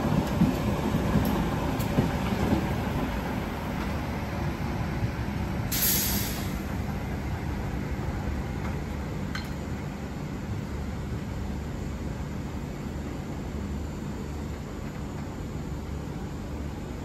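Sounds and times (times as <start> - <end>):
electric train rumbling on track: 0.0 - 17.0
short hiss: 5.7 - 6.6.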